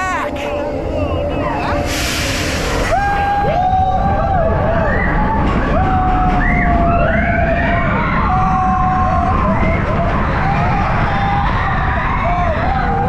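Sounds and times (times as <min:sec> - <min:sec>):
low rush of wind and ride noise: 0:00.0 - 0:13.0
riders screaming and whooping: 0:02.7 - 0:13.0.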